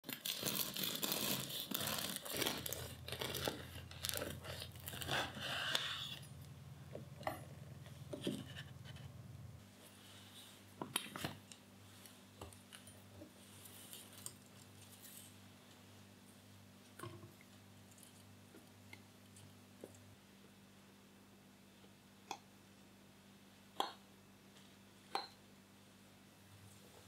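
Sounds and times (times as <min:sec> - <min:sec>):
knife sawing through bread crust: 0:00.4 - 0:06.1.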